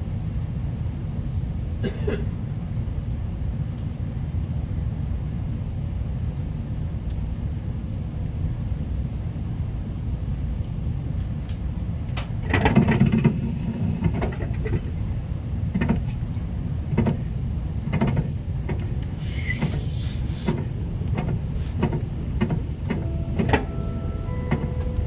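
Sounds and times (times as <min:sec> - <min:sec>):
train interior low rumble: 0:00.0 - 0:25.0
wheels knocking over rail joints: 0:12.4 - 0:13.4
brake hiss and squeal: 0:19.1 - 0:20.6.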